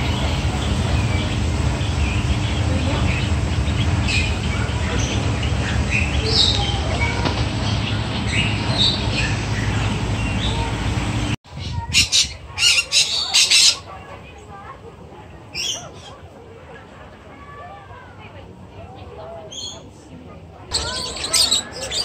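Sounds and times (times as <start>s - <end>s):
low hum: 0.0s - 11.4s
small birds chirping: 0.0s - 13.8s, 20.7s - 22.0s
parrot squawking: 12.0s - 13.9s, 20.7s - 22.0s.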